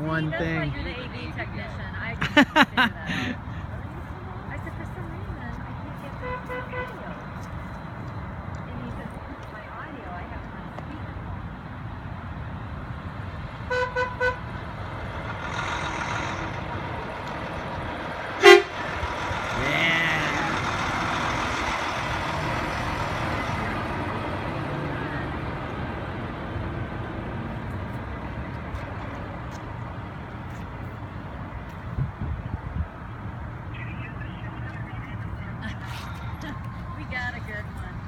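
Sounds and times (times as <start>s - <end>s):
truck passing by: 0.0s - 38.0s
truck horn blast: 6.2s - 7.0s, 13.7s - 14.6s, 18.4s - 21.1s
truck horn toots: 13.7s - 14.5s, 18.4s - 21.1s.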